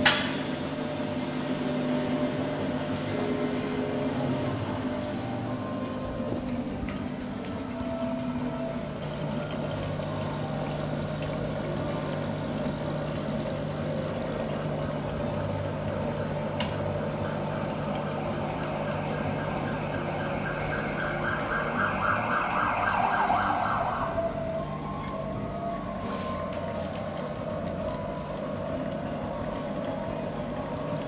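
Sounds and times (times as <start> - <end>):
espresso machine pump humming: 0.0 - 22.6
emergency vehicle siren wailing: 1.6 - 13.1, 14.6 - 31.0.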